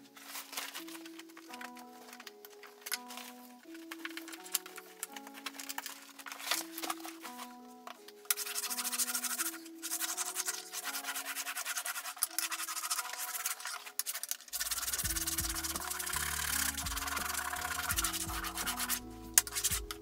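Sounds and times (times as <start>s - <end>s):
wax scratchy rubbing on board: 8.3s - 20.0s
lo-fi hip-hop music: 14.6s - 20.0s
bass line: 14.7s - 20.0s.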